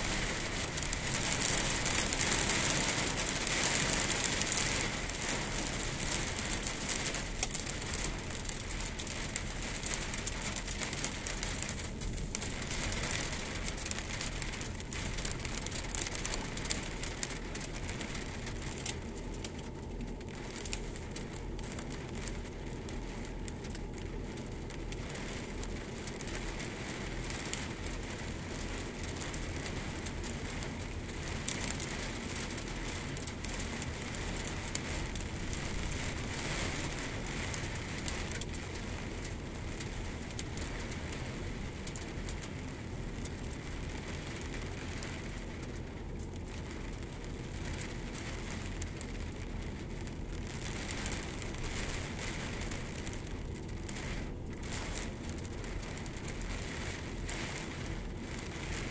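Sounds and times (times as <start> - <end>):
heavy rain on muddy ground: 0.0 - 58.9.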